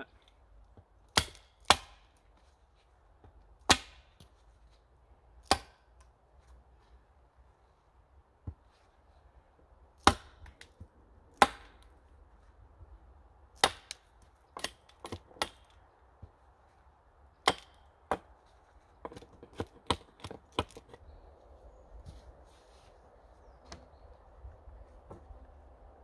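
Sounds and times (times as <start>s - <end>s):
hatchet chopping wood: 0.8s - 2.2s, 3.2s - 4.3s, 5.4s - 5.9s, 10.0s - 11.9s, 13.6s - 15.8s, 17.4s - 18.3s, 19.0s - 21.0s.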